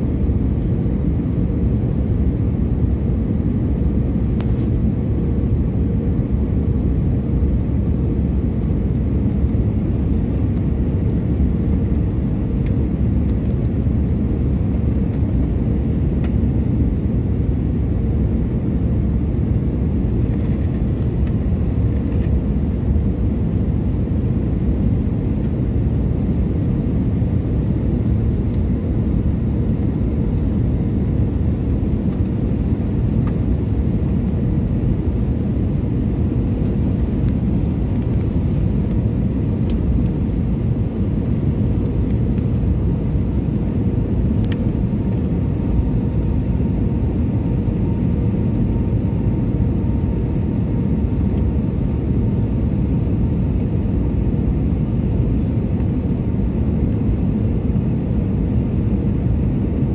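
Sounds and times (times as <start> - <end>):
jet engines and airflow rumble: 0.0 - 59.9.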